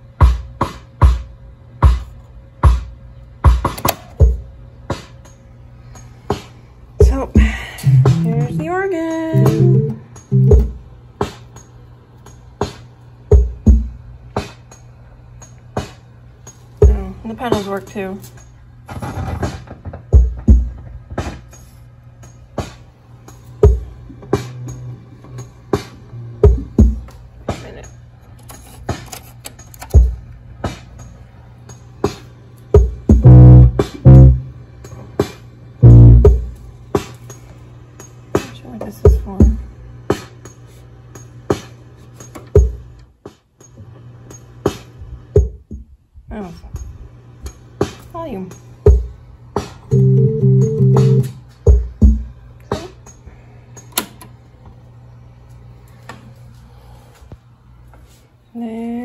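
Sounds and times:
drum-machine beat: 0:00.0 - 0:18.5, 0:19.9 - 0:21.6, 0:22.2 - 0:28.1, 0:28.8 - 0:43.7, 0:44.3 - 0:46.0, 0:46.7 - 0:53.2
steady low hum: 0:00.0 - 0:59.0
electronic organ low held notes: 0:07.8 - 0:10.8, 0:33.2 - 0:34.6, 0:35.8 - 0:36.4, 0:49.9 - 0:51.4.

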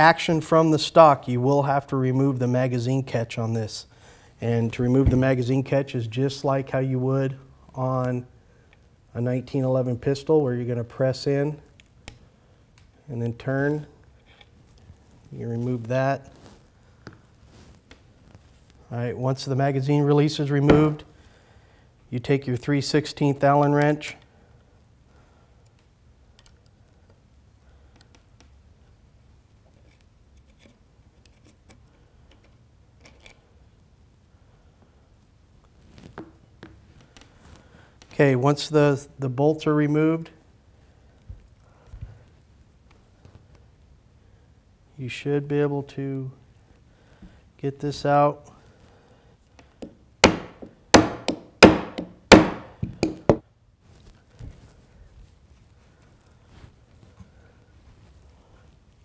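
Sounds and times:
hammer striking metal: 0:50.2 - 0:53.4.

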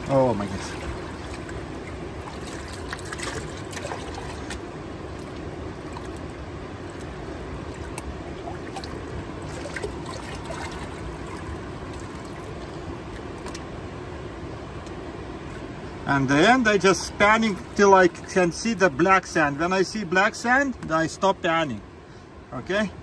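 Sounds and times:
water sloshing in pan: 0:00.0 - 0:13.6
stream flowing: 0:00.0 - 0:22.5.

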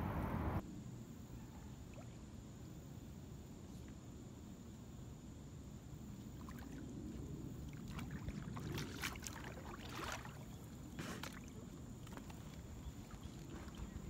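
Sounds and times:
steady low rumble: 0:00.0 - 0:01.1
paddle splashing and dripping: 0:07.6 - 0:14.0.

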